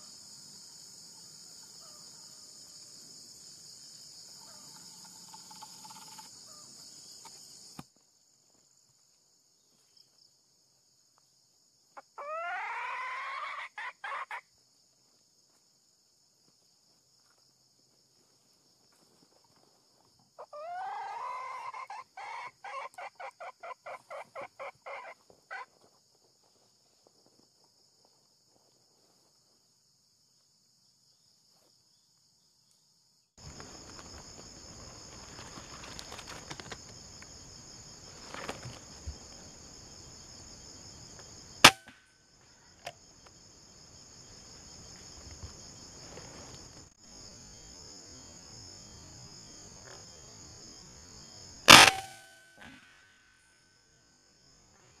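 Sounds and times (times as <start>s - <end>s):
high insect buzz: 3.4s - 7.8s
junglefowl calling: 12.0s - 14.5s, 20.4s - 25.7s, 51.7s - 52.7s.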